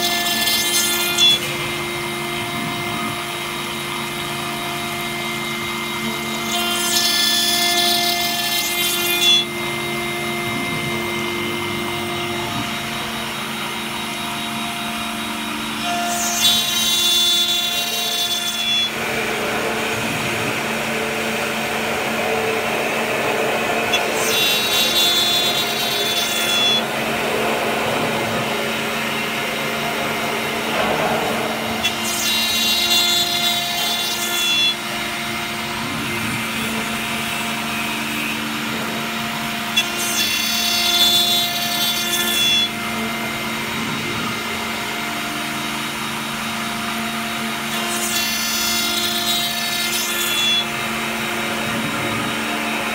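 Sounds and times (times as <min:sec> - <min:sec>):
router spindle milling metal: 0:00.0 - 0:52.9
high-pitched whine: 0:01.2 - 0:07.5, 0:08.2 - 0:41.3.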